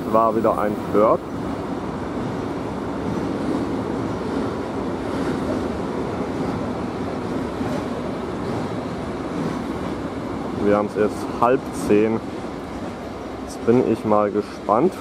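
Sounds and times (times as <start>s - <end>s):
freight train wheels on rails: 0.0s - 15.0s.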